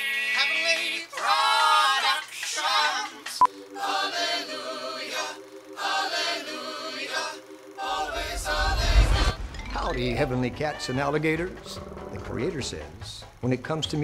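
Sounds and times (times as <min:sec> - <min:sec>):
voices singing in harmony: 0:00.0 - 0:11.7
long held low notes: 0:07.7 - 0:12.4.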